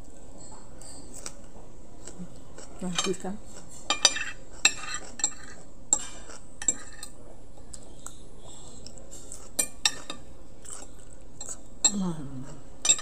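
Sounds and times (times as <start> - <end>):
cutlery clinking and scraping on plate: 0.4 - 1.5, 2.6 - 7.2, 8.5 - 12.0, 12.8 - 13.0.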